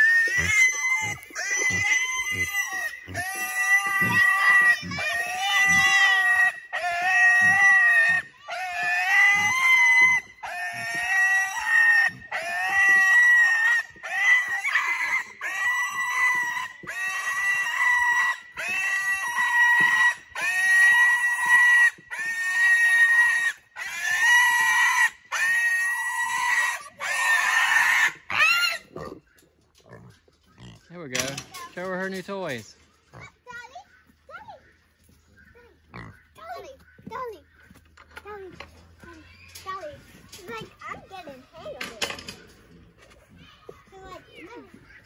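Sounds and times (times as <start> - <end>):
pig squealing: 0.0 - 31.9, 35.8 - 37.1.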